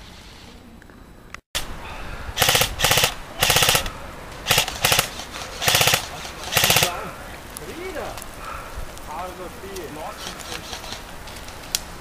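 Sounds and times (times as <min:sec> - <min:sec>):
airsoft rifle full-auto bursts: 0:02.4 - 0:07.0.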